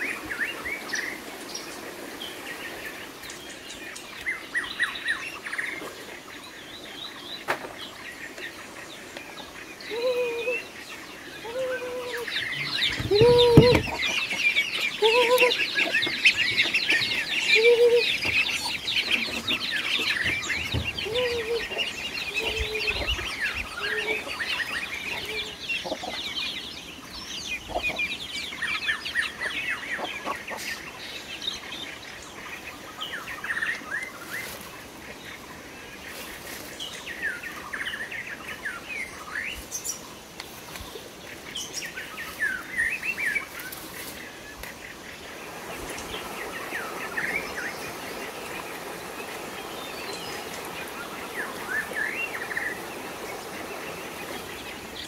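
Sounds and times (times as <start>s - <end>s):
hen clucking: 11.4s - 26.3s, 27.6s - 28.1s, 29.4s - 30.7s
chicks and ducklings peeping: 11.4s - 26.5s, 27.5s - 30.8s.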